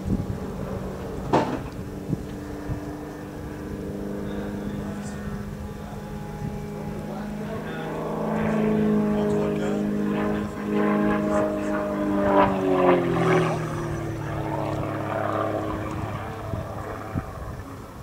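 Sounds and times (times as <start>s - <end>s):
propeller plane droning overhead: 0.0s - 18.0s.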